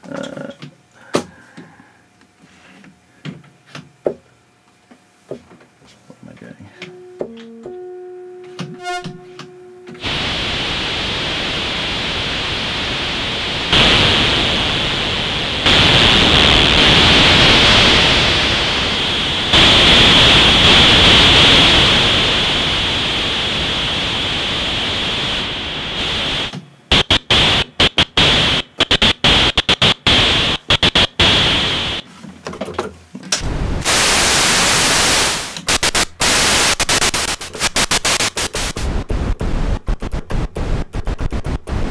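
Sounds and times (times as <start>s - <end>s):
short synth tones: 6.9s - 10.2s
loud synthesizer hiss: 10.0s - 32.0s, 33.4s - 39.9s.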